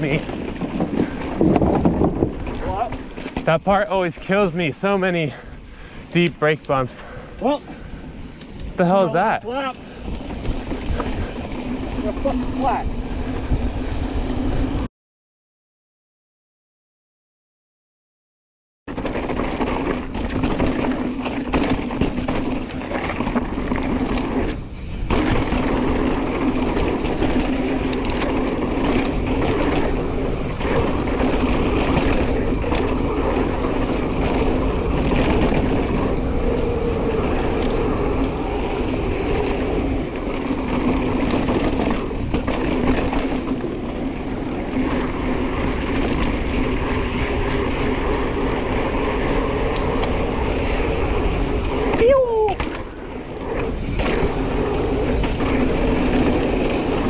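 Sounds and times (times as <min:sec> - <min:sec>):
wind on microphone: 0:00.0 - 0:03.2, 0:07.0 - 0:14.9
bike clattering over bumps: 0:00.0 - 0:05.1, 0:18.9 - 0:38.0, 0:38.6 - 0:49.0
bike tyres rolling on dirt: 0:00.0 - 0:14.9, 0:18.9 - 0:57.0.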